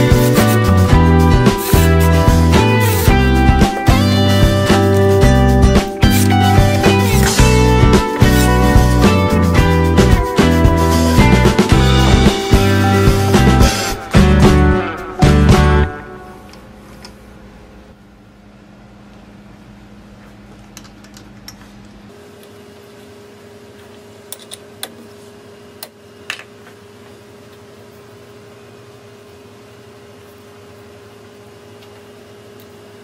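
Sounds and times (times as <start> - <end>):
steady hum: 0.0 - 22.2
clicks and taps of lathe parts: 20.6 - 22.0.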